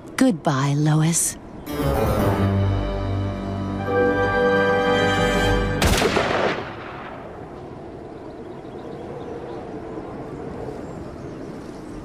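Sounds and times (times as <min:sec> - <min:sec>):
music: 0:01.6 - 0:05.9
gunshot with echo: 0:05.8 - 0:07.3.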